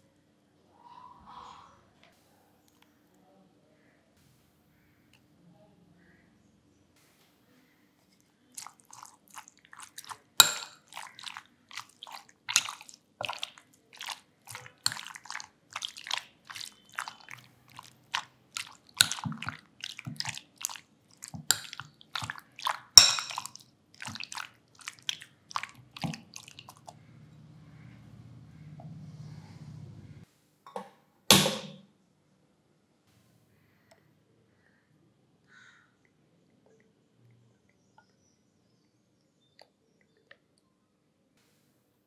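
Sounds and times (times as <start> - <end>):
wet squelches of mixing: 7.4 - 28.8
spoon clinking against glass: 10.4 - 10.8, 23.0 - 23.5.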